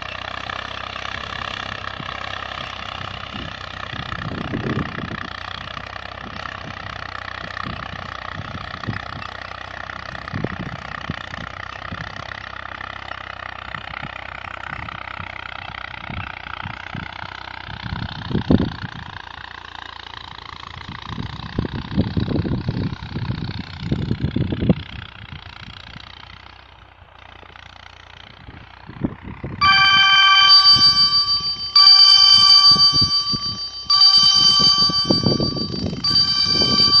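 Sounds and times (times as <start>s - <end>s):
low rumbles: 0.0s - 37.0s
phone ringtone: 29.6s - 37.0s.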